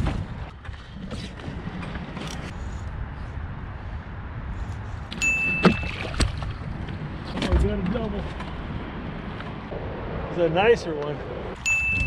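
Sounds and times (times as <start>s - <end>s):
wind rumble on microphone: 0.0s - 12.0s
short high-pitched beep: 5.2s - 6.0s, 11.6s - 12.0s.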